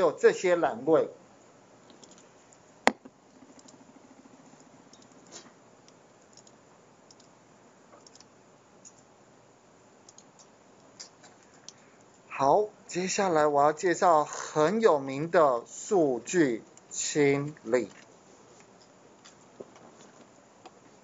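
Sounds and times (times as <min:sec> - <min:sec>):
computer mouse clicks: 0:01.9 - 0:02.3, 0:02.9 - 0:09.1, 0:10.1 - 0:11.8.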